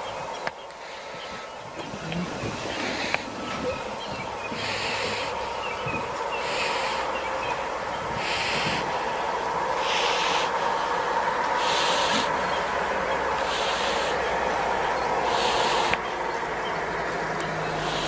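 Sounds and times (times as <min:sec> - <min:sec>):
steady hum: 0:00.0 - 0:18.0
leopard hissing: 0:00.8 - 0:18.0.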